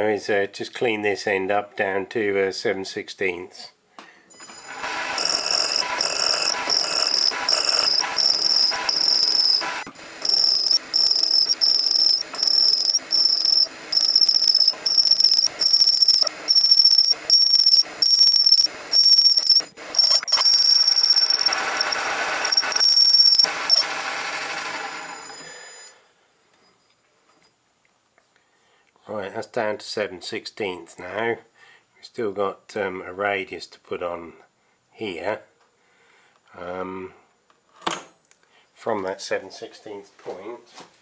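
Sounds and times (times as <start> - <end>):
high-pitched cutting tool whistle: 4.3 - 26.0
lathe running: 4.4 - 25.9.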